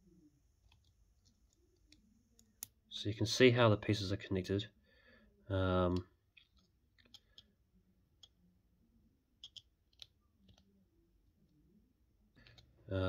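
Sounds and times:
plastic puzzle pieces clicking: 9.4 - 10.6.

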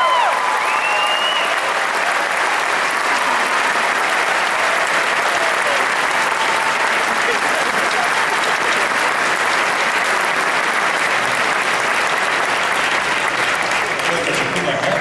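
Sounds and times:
audience applauding: 0.0 - 15.0
high whistle: 0.6 - 1.6.

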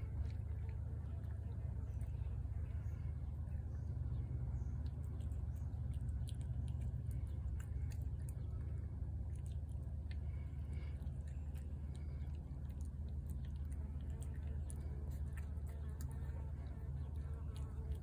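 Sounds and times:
cat chewing food: 0.0 - 18.0
steady low rumble: 0.0 - 18.0
small irregular clicks: 4.8 - 18.0.

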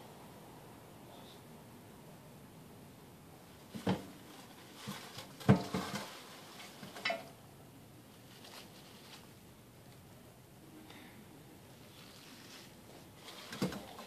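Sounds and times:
kitchen items knocking and clattering: 3.7 - 7.4, 13.3 - 14.0.

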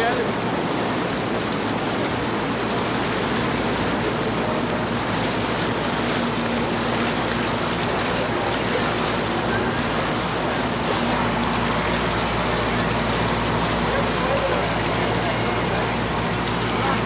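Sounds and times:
rushing water: 0.0 - 17.0
wind: 0.0 - 17.0.

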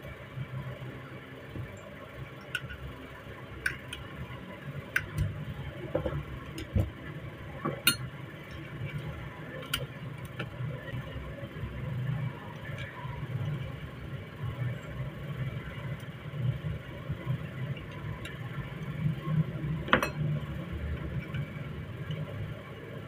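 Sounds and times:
metallic clicks and taps: 4.9 - 5.4.

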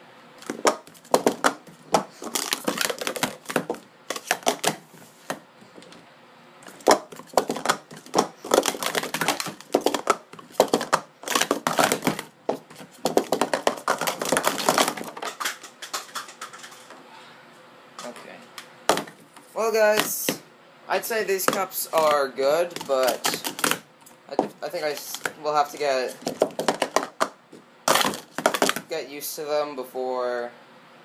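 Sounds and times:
plastic cups clacking: 0.4 - 5.4, 6.7 - 16.9, 18.9 - 20.4, 21.4 - 28.9.

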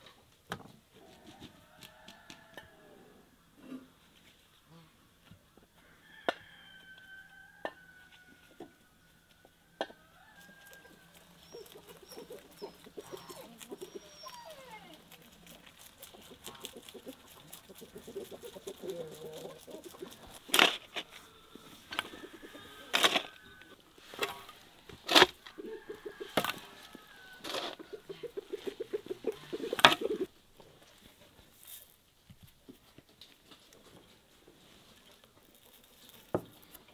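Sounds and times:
chickens clucking: 9.8 - 30.4.

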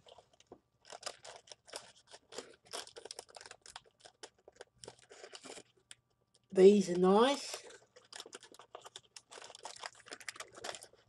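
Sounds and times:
rustling paper box: 0.0 - 5.6
crunching of fried chicken: 0.0 - 6.5, 7.4 - 11.0.

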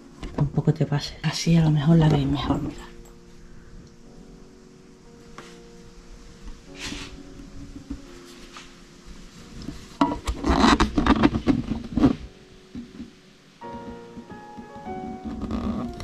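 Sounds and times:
rubbing and scraping: 6.7 - 8.8, 9.4 - 13.1, 13.7 - 16.0.

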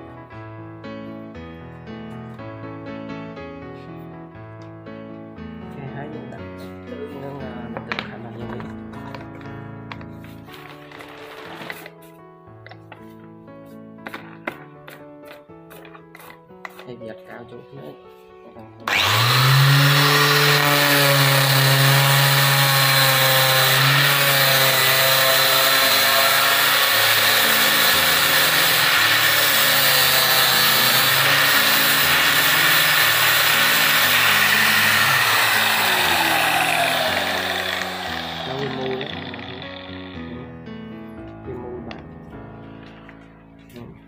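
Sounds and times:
angle grinder whining: 10.5 - 11.9, 18.8 - 40.4.

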